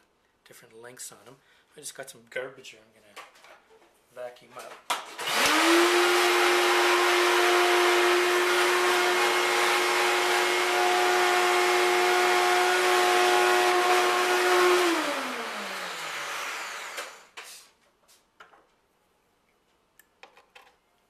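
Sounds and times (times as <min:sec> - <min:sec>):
vacuum cleaner running: 0:05.1 - 0:17.5.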